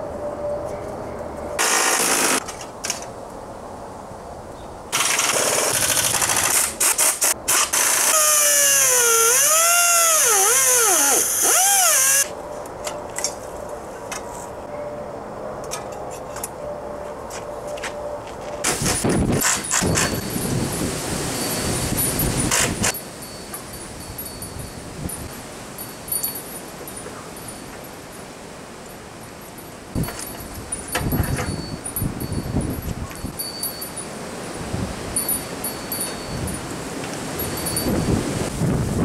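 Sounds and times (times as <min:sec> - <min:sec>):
power tool whining: 0:07.7 - 0:12.3.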